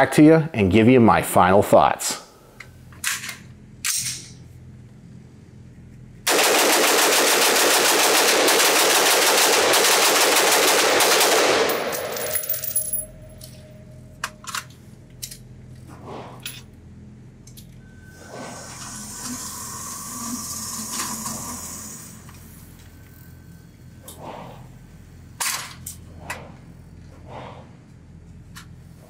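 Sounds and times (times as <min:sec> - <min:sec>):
rifle shots echoing indoors: 0:06.3 - 0:13.2.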